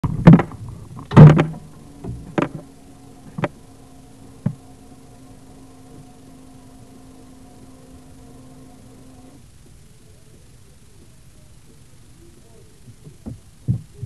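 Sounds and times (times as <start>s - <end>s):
low steady hum: 0.0s - 14.0s
knocks: 0.2s - 2.7s.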